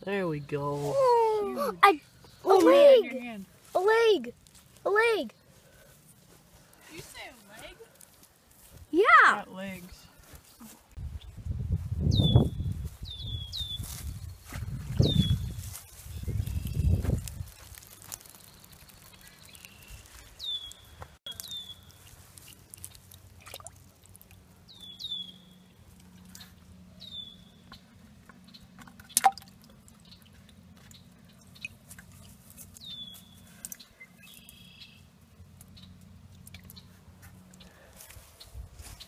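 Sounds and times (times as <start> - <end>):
water dripping into bucket: 21.3 - 24.9, 27.7 - 32.8, 33.6 - 33.9, 35.6 - 36.8.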